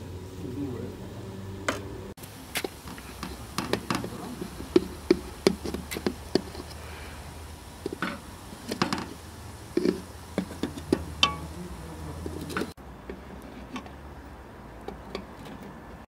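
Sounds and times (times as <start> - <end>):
knife tapping metal pot: 9.8 - 11.5.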